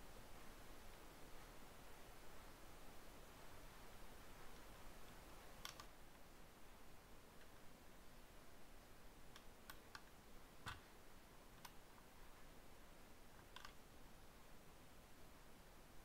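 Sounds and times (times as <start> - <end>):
faint sharp clicks: 4.5 - 6.0, 9.3 - 10.8, 11.6 - 12.1, 13.4 - 13.8.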